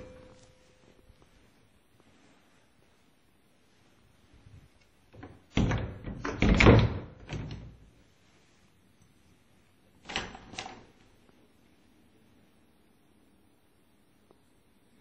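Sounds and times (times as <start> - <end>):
closet door knocks and rattles: 5.2 - 7.8.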